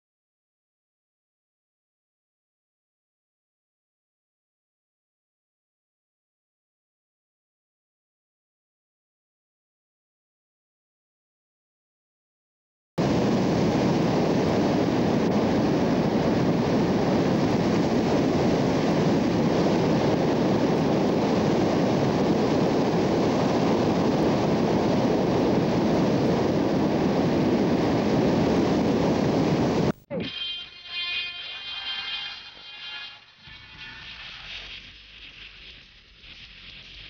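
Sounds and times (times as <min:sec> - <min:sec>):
wind rushing over microphone: 0:13.0 - 0:30.0.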